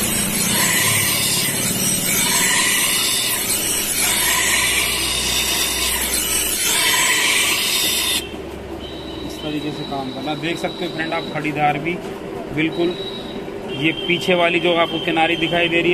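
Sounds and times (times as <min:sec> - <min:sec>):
blade grinding on sharpening wheel: 0:00.0 - 0:08.3.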